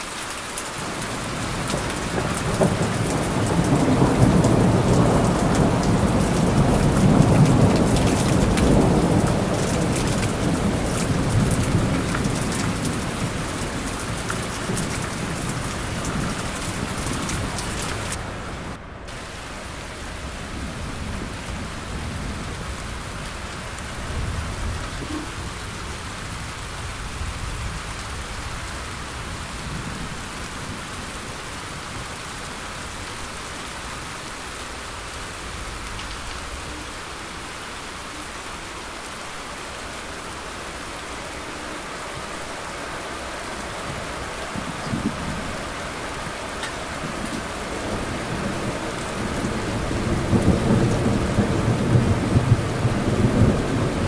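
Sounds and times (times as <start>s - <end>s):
heavy rain: 0.0s - 54.0s
rolling thunder: 1.1s - 28.6s, 46.8s - 54.0s.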